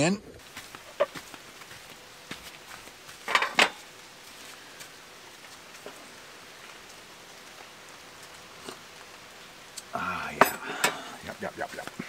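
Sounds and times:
steady hiss: 0:00.0 - 0:12.0
cooking gear clattering down: 0:03.3 - 0:03.8.

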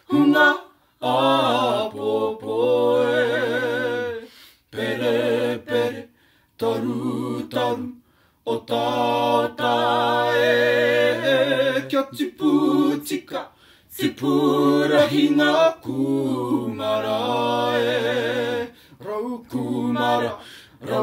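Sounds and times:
small group singing unaccompanied: 0:00.0 - 0:21.0
singers breathing: 0:04.2 - 0:04.7, 0:06.1 - 0:06.6, 0:08.0 - 0:08.4, 0:13.5 - 0:13.9, 0:20.4 - 0:20.8.

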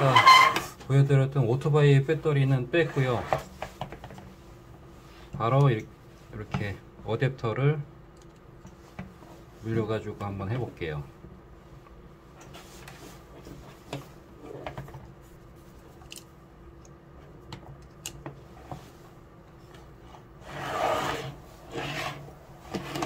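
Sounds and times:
charger scraping across bench: 0:00.0 - 0:00.7, 0:20.4 - 0:23.0.

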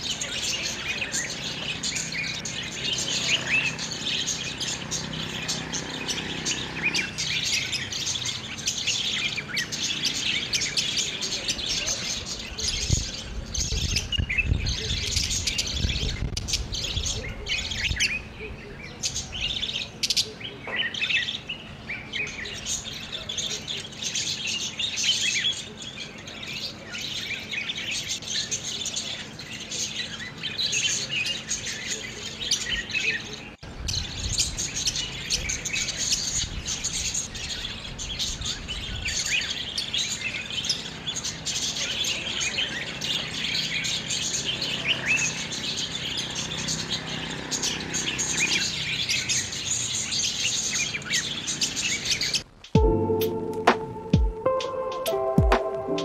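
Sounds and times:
budgerigars chirping: 0:00.0 - 0:52.6.

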